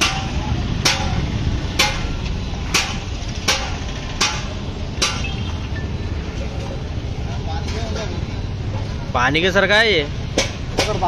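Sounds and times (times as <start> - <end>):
sharp ringing knocks: 0.0 - 5.5
steady low rumble: 0.0 - 7.6.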